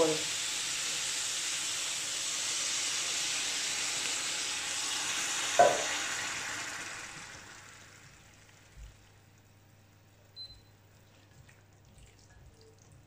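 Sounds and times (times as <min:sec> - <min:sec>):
food sizzling in a pan: 0:00.0 - 0:09.4
juice pouring: 0:00.0 - 0:10.3, 0:10.9 - 0:13.0.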